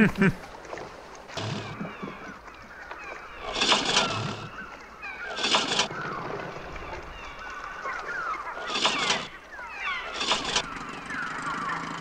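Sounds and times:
seagulls calling: 1.3s - 12.0s.

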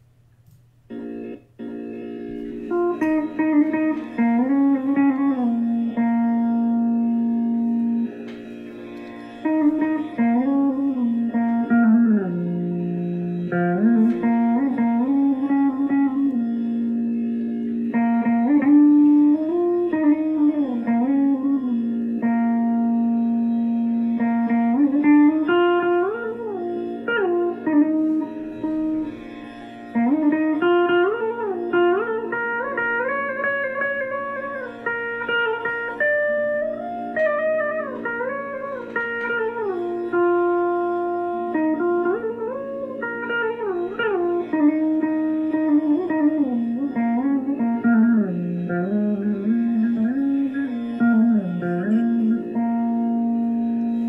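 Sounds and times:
plucked string melody: 0.0s - 54.0s.

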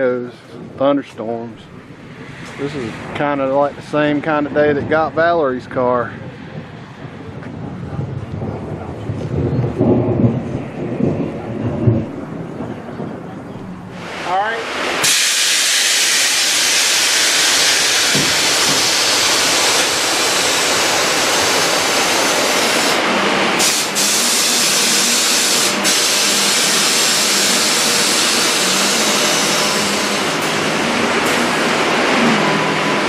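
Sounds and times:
heavy rain on a roof: 1.8s - 33.0s.

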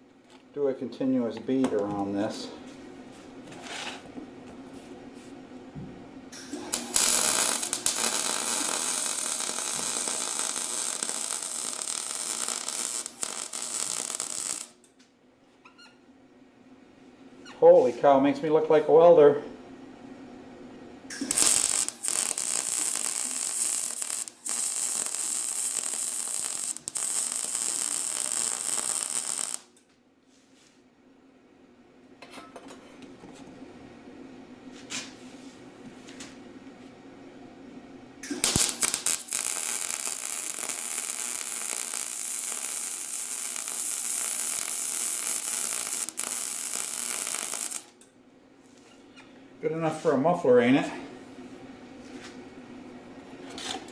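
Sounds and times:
welder arc crackling and hissing: 1.1s - 2.8s, 6.3s - 14.8s, 21.1s - 29.8s, 38.2s - 48.0s.

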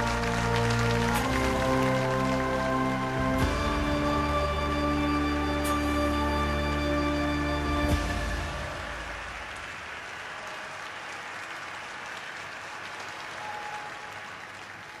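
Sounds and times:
low music notes: 0.0s - 9.4s
audience applauding: 0.0s - 15.0s.

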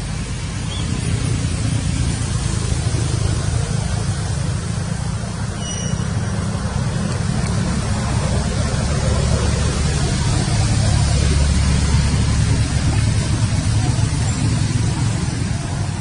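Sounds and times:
low rumble with hiss: 0.0s - 16.0s
faint high chirp: 5.6s - 6.3s.

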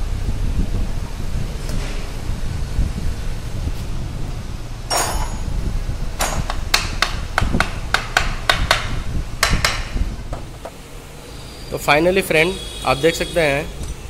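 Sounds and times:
metallic rattle of tools: 4.9s - 6.5s.

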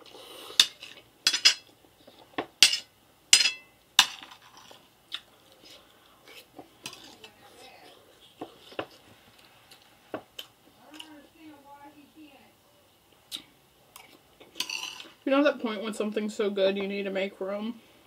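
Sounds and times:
metal fork clinking on plate: 2.6s - 4.2s.

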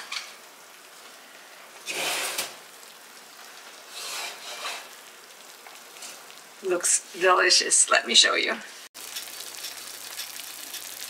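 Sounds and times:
oven rack scraping: 1.8s - 2.6s, 3.8s - 5.0s.

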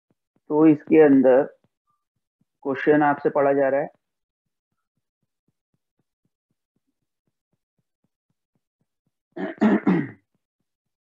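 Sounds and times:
person's voice: 0.5s - 1.5s, 2.6s - 3.9s.

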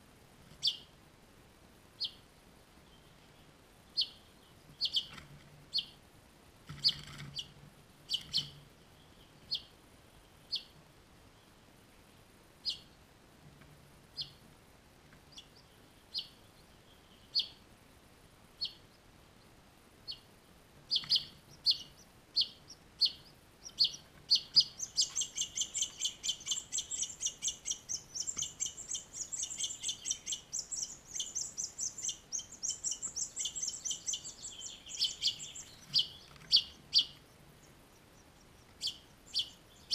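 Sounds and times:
fledglings chirping: 0.6s - 0.9s, 2.0s - 6.0s, 6.7s - 10.8s, 12.6s - 13.0s, 14.1s - 14.4s, 15.2s - 17.6s, 18.6s - 19.0s, 20.0s - 20.3s, 20.9s - 39.9s.

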